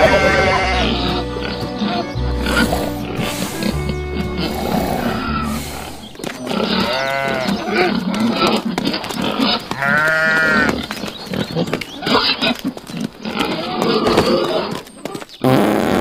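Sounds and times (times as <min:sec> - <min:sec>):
sheep bleating: 0:00.0 - 0:10.9
pig calling: 0:00.0 - 0:15.2.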